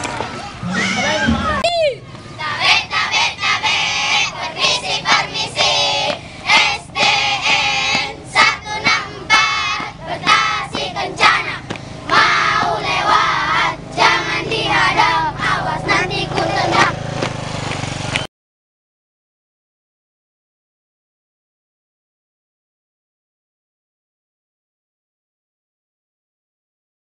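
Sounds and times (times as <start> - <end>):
children singing in unison: 2.4 - 17.0.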